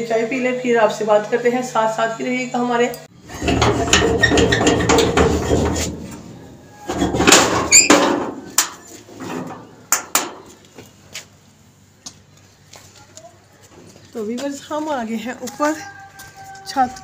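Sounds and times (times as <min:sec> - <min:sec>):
metal door rattling: 0:03.3 - 0:06.1, 0:06.9 - 0:08.4
short metal squeak: 0:06.4 - 0:08.1.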